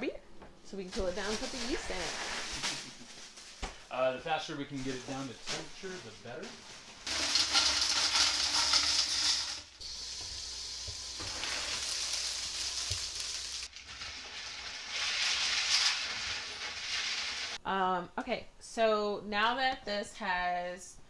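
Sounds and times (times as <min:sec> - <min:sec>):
ice cubes clattering into pot: 0:07.1 - 0:09.8, 0:11.1 - 0:17.6
ice water stirred with spoon: 0:07.1 - 0:10.3
water pouring over ice: 0:07.1 - 0:17.6.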